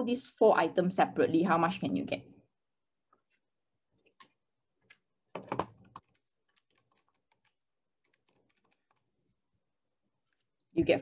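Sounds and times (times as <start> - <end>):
keyboard typing: 4.2 - 9.2.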